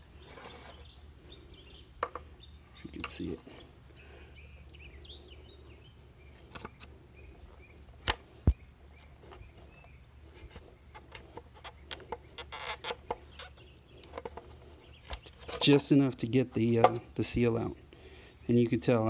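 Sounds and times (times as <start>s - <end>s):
faint bird calls: 0.0s - 15.7s.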